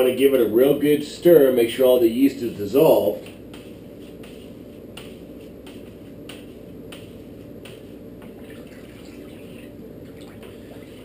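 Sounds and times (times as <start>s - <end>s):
liquid swishing: 3.2s - 11.0s.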